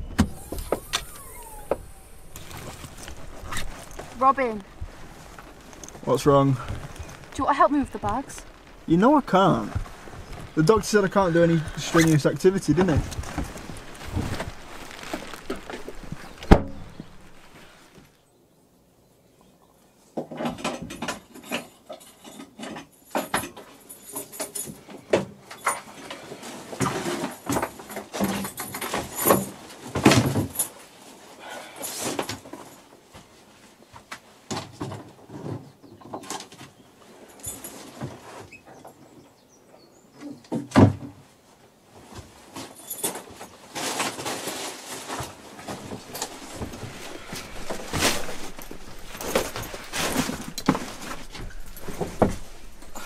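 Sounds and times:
knocks and creaks of wood: 0.0 - 18.2, 20.2 - 30.8, 33.9 - 39.0, 40.2 - 41.3, 42.0 - 53.0
backpack rustling: 0.3 - 18.2, 42.2 - 53.0.

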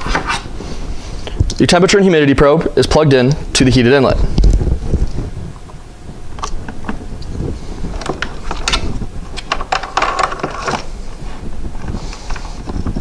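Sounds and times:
cables rattling in plastic case: 8.0 - 10.9.

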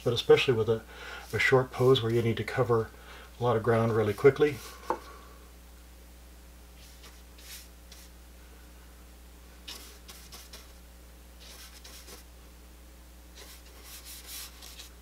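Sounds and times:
steady low hum: 0.0 - 15.0
brush strokes on paper: 6.8 - 8.2, 9.6 - 10.8, 11.4 - 12.3, 13.3 - 15.0.

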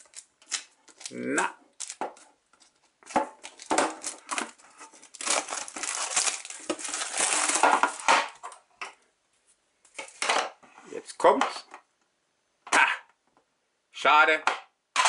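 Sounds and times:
plastic wrapping crinkling and tearing: 0.0 - 8.5.

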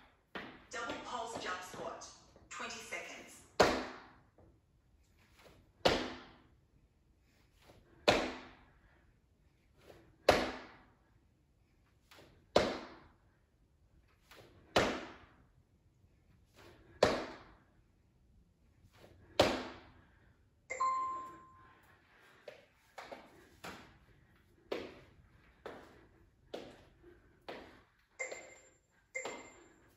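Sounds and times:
interval timer beep: 20.7 - 21.6, 28.2 - 29.8.

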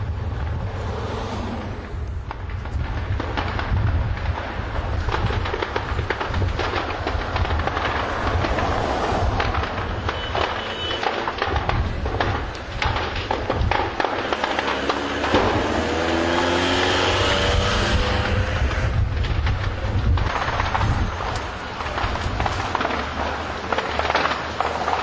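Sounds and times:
vehicle engine rumbling and rattling: 0.0 - 25.0.

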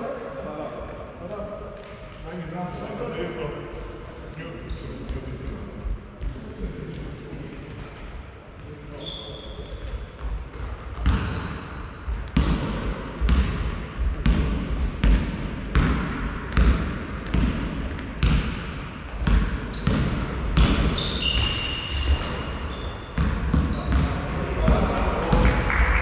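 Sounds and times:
shoes squeaking on court: 4.6 - 6.3, 9.0 - 12.1, 14.6 - 15.3, 19.0 - 24.2
basketball bouncing in hall: 4.7 - 26.0.

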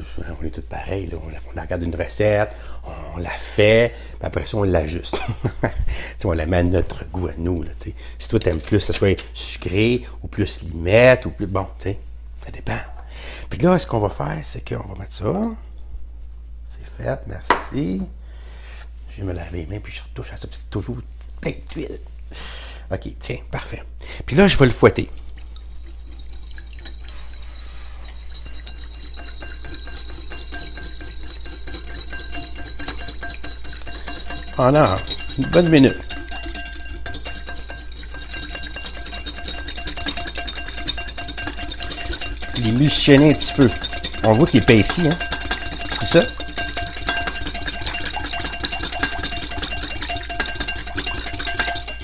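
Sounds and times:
whisk clinking against glass bowl: 8.3 - 9.2, 25.2 - 52.0
liquid swishing: 25.0 - 52.0.

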